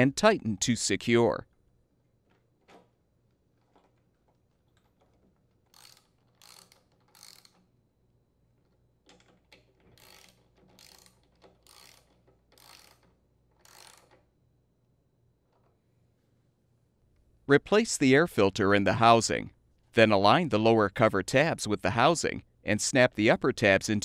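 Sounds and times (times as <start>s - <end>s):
socket ratchet clicking: 4.7s - 7.7s, 9.1s - 14.3s.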